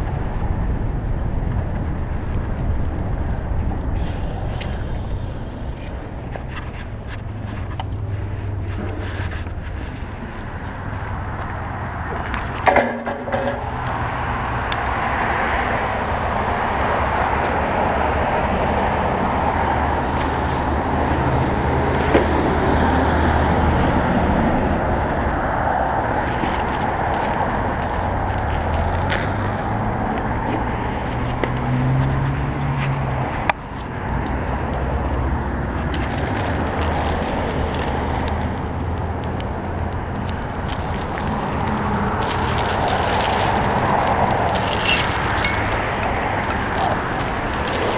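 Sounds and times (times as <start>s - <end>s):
street traffic noise: 0.0s - 47.9s
bike chain lock rattling: 26.0s - 29.8s, 35.9s - 37.8s, 40.7s - 47.9s.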